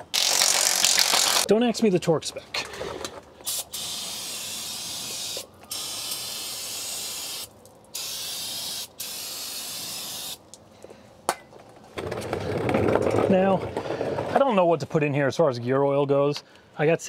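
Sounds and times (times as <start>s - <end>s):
aerosol spray can hissing: 3.4s - 10.4s.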